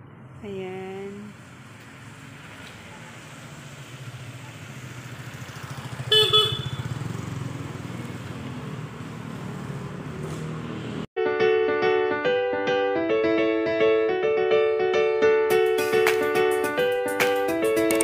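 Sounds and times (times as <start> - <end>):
passing vehicle engine: 0.0 - 11.1
car horn toots: 6.1 - 6.9
piano music: 11.2 - 18.0.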